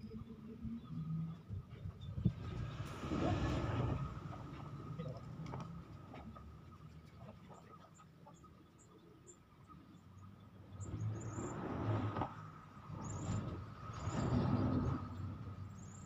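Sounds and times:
traffic rumbling over bridge: 1.6s - 6.7s, 10.6s - 16.0s.

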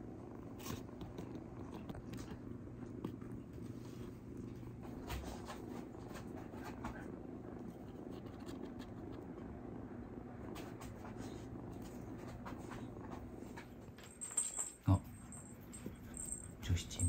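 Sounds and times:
cat purring: 0.0s - 17.0s
faint ticks and taps: 0.7s - 3.7s.

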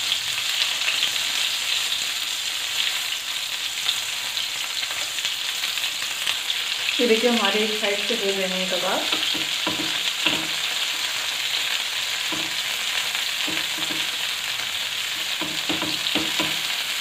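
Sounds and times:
kebabs sizzling in oil: 0.0s - 17.0s
metal tongs knocking on pan: 9.1s - 10.7s, 12.3s - 12.6s, 13.4s - 14.2s, 15.2s - 16.8s.

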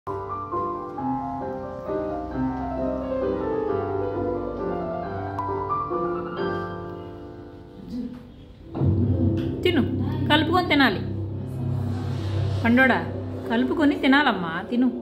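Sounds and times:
gentle piano melody: 0.1s - 11.7s.

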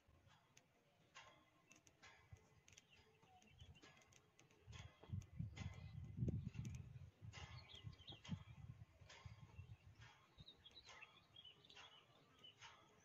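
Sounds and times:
wind rumbling on microphone: 4.6s - 11.0s.

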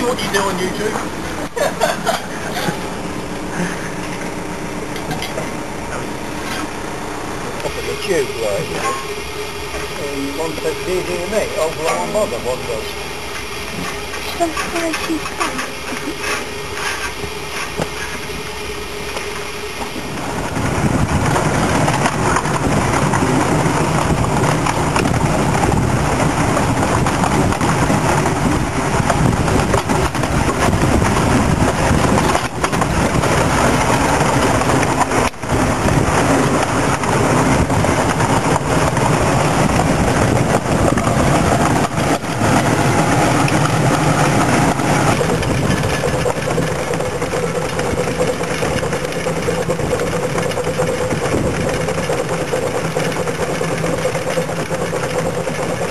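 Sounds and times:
miniature train running noise: 13.7s - 18.4s, 21.1s - 55.9s.

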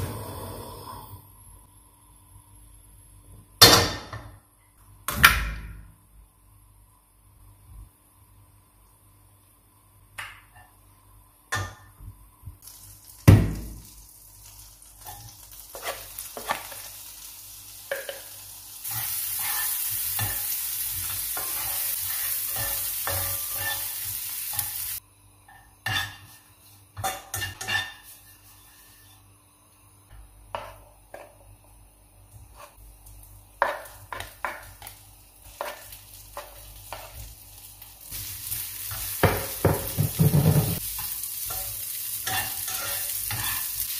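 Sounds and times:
onion sizzling in a frying pan: 12.6s - 25.0s, 32.4s - 43.9s
spatula scraping and tapping pan: 18.9s - 24.7s, 25.5s - 26.4s, 27.0s - 29.1s, 30.5s - 31.4s, 33.6s - 37.3s, 38.9s - 43.8s.

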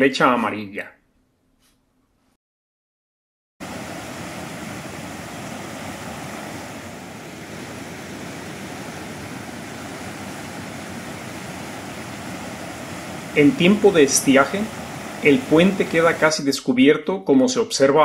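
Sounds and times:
river rushing over bridge: 3.6s - 16.4s.

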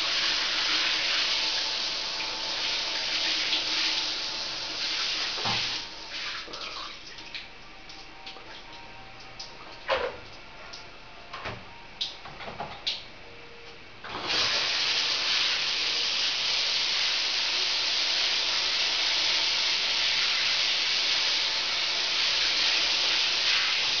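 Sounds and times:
shower head spraying water: 0.0s - 6.6s, 14.1s - 24.0s.

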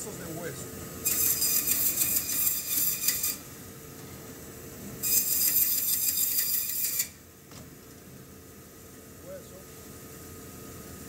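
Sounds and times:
band saw rasping through bone: 1.0s - 3.4s, 5.0s - 7.1s
saw humming: 1.0s - 3.4s, 5.0s - 7.2s.

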